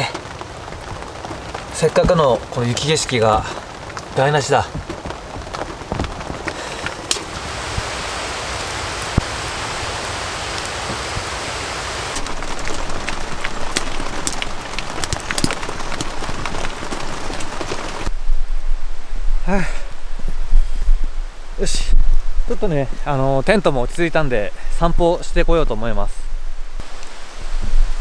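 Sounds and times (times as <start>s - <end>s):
sharp ticks of raindrops: 0.0s - 18.1s, 26.8s - 27.2s
rain falling: 0.0s - 18.2s, 26.8s - 28.0s.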